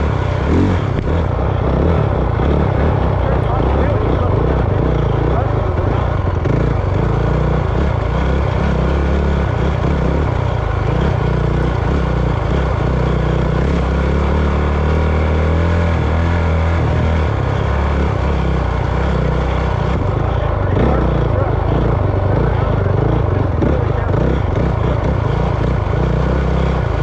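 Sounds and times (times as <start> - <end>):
vehicle engine running: 0.0 - 27.0.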